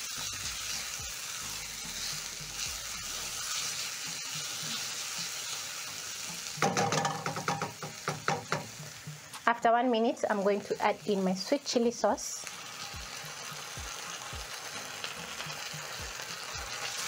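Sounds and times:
vegetables sizzling in hot oil: 0.0s - 17.0s.

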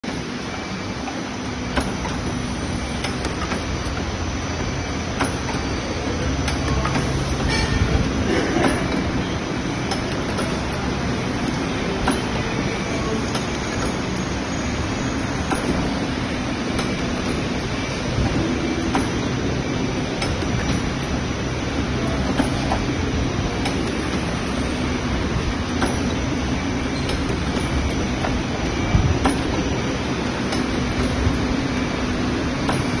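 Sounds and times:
machine rumble and hum: 0.0s - 33.0s
sharp mechanical clicks: 1.0s - 7.6s.

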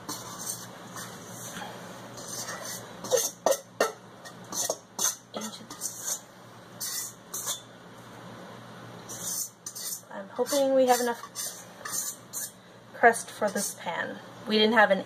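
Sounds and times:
metal spoon scraping a bowl: 0.0s - 7.7s, 9.1s - 12.6s, 13.4s - 13.8s.

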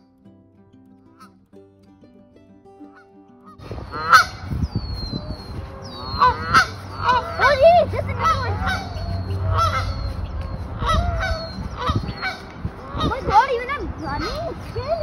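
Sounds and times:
geese honking: 2.9s - 14.4s.

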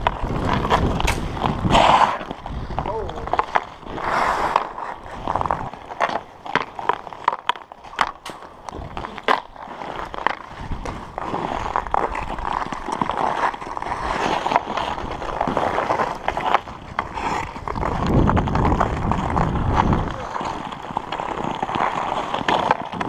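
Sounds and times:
wind rumble on microphone: 0.0s - 5.8s, 9.9s - 12.8s, 13.8s - 23.0s
skate blades scraping on ice: 0.0s - 23.0s
hockey stick clacking on puck: 4.4s - 10.4s.

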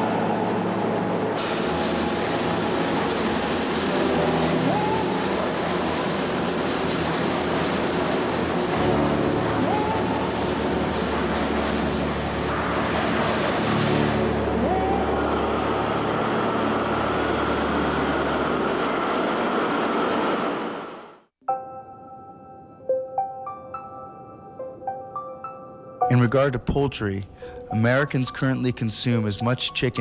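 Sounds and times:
soft piano music: 0.0s - 18.4s, 21.4s - 30.0s
machinery rumbling hum: 0.0s - 21.3s.

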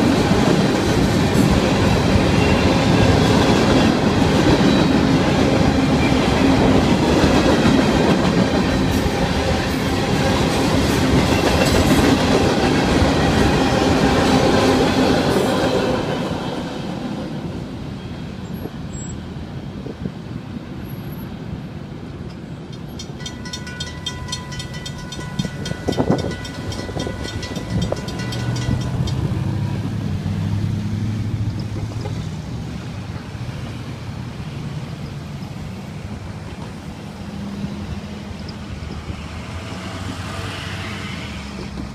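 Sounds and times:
crossing warning bell ringing: 22.7s - 29.9s
car passing: 28.2s - 34.3s, 36.9s - 41.9s.

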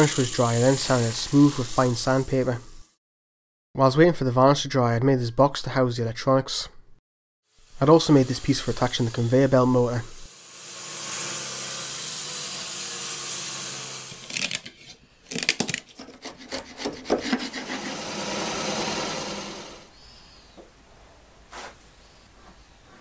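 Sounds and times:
table saw cutting wood: 0.0s - 2.5s, 7.8s - 14.6s, 16.3s - 19.9s
chisel knocking and scraping wood: 15.5s - 17.9s.

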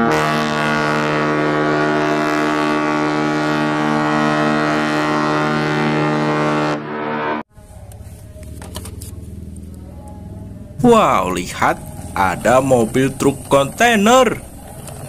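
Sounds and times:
ship's horn blast: 0.0s - 7.6s.

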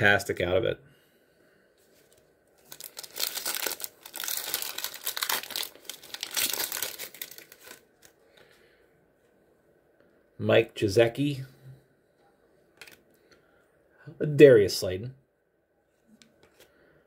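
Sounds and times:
wrapper tearing and crinkling: 2.1s - 8.2s.

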